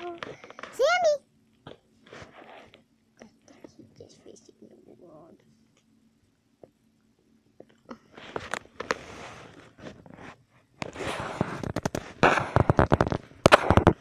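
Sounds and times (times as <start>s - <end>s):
microphone rubbing on fur: 2.0s - 2.8s, 8.2s - 14.0s.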